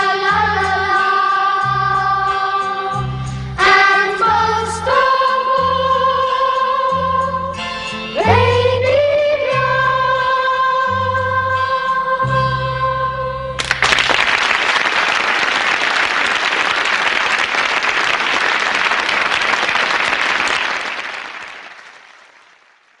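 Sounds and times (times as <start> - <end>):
audience applause: 13.6 - 23.0.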